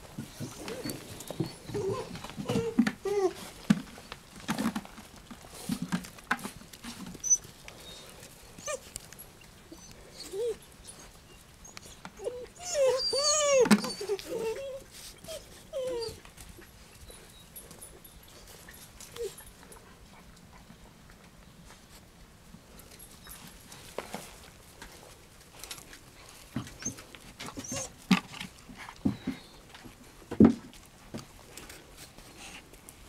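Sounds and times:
puppies whining: 0.2 - 4.2, 7.0 - 19.6, 26.7 - 28.0.

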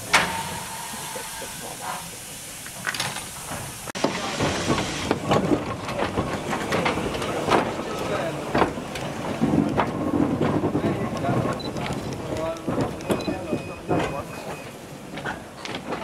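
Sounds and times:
steam hiss: 0.0 - 9.4
steam locomotive exhaust beats: 0.0 - 16.0.

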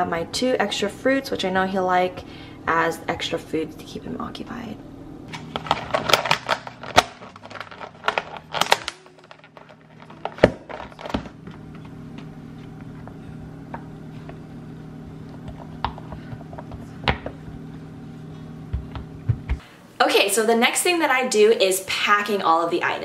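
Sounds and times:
steady low hum: 0.0 - 20.6
plastic containers clicking and knocking: 5.3 - 11.4.

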